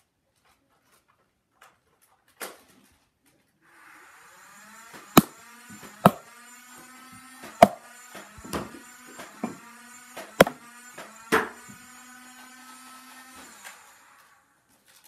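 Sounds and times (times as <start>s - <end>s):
toy blaster motors whirring: 3.7s - 15.0s
loud sharp knocks: 7.6s - 7.8s, 8.4s - 9.6s.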